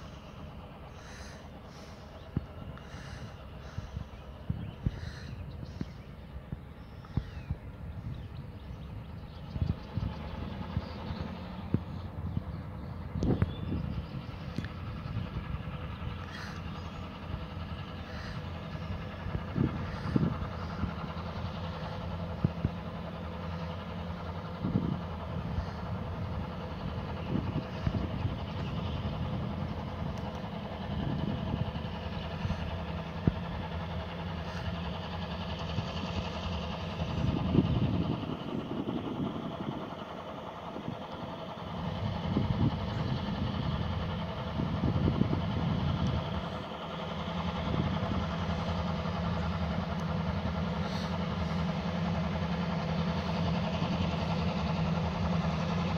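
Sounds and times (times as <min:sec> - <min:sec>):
diesel locomotive engines droning: 0:00.0 - 0:55.9.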